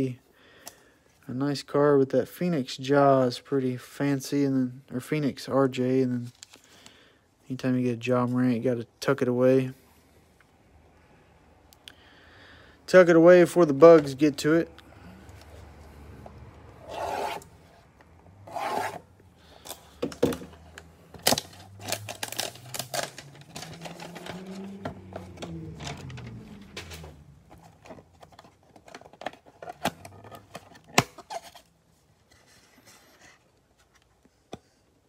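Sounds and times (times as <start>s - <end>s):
packaging rustling: 18.8s - 31.7s
plastic and cardboard crinkling: 19.5s - 34.3s.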